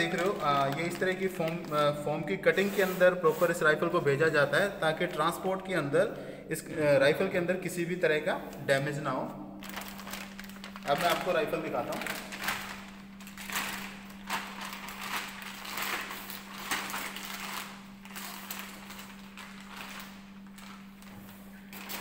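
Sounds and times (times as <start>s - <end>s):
plastic bag rustling and crinkling: 0.0s - 3.6s, 9.6s - 22.0s
steady low hum: 0.0s - 22.0s.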